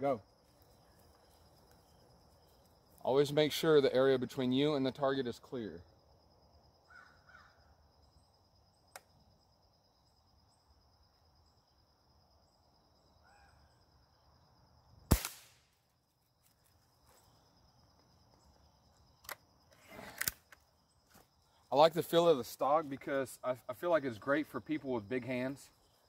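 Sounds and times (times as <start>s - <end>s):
small click: 8.9s - 9.1s, 19.2s - 19.4s
air rifle shot: 15.1s - 15.7s.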